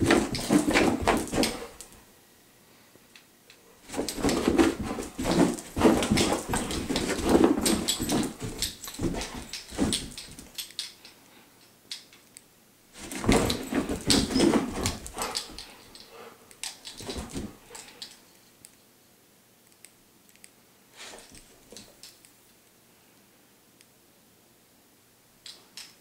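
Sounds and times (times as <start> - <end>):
dog pouncing thumps: 0.0 - 1.9, 3.9 - 10.5, 13.0 - 15.7, 17.0 - 17.8
dog paws scrabbling on carpet: 0.0 - 2.0, 3.8 - 10.6, 13.0 - 15.8, 16.9 - 17.8.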